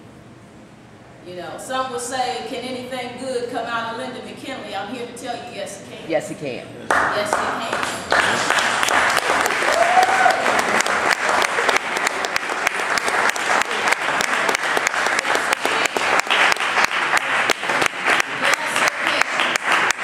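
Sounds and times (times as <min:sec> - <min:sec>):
audience applauding: 0:06.9 - 0:20.0
voices under applause: 0:06.9 - 0:20.0.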